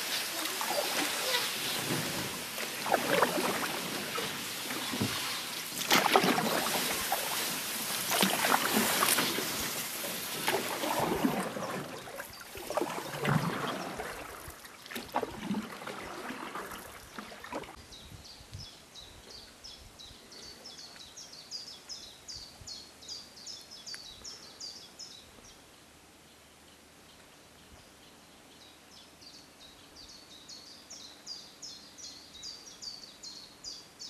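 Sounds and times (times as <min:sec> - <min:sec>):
songbird singing: 0:00.0 - 0:07.5, 0:16.7 - 0:34.0
paddle strokes splashing: 0:00.0 - 0:17.8
water trickling: 0:00.0 - 0:17.8.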